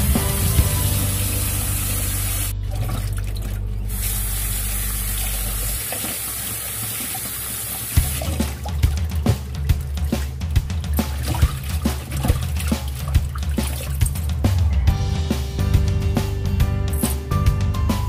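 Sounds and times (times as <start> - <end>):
background music: 0.0 - 5.8, 8.0 - 18.0
tap water splashing on leaves: 8.0 - 14.3.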